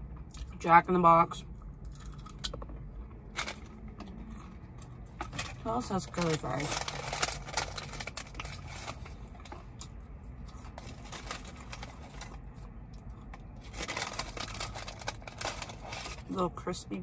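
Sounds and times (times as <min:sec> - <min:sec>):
paper sleeve crinkling: 0:05.2 - 0:09.5, 0:10.6 - 0:12.4, 0:13.6 - 0:16.3.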